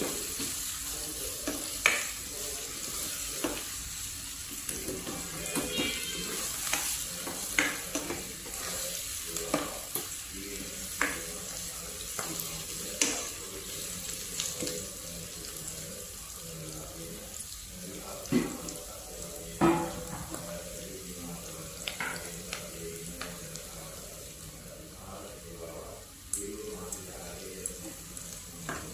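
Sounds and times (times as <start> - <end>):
vegetables sizzling in oil: 0.0 - 28.9
spatula knocking and scraping pan: 4.8 - 8.8.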